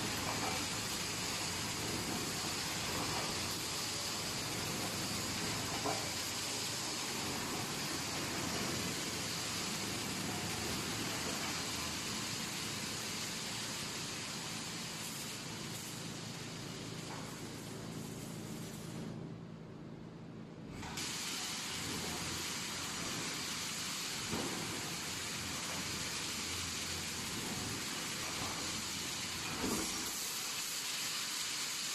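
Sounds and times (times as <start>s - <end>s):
welding machine hiss and hum: 0.0s - 31.9s
machine clunk: 29.4s - 30.1s.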